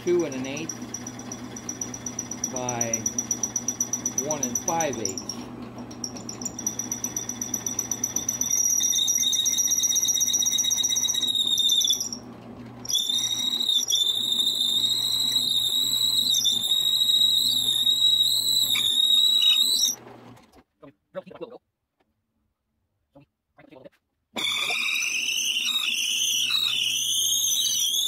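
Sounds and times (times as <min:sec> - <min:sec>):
drill press humming: 0:00.0 - 0:20.4
drill bit squealing: 0:00.4 - 0:05.4, 0:06.0 - 0:12.3, 0:12.9 - 0:20.0, 0:24.4 - 0:28.0.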